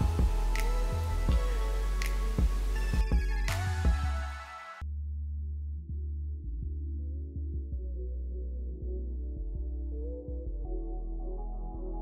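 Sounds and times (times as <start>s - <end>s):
music with beat and bass: 0.0s - 4.5s.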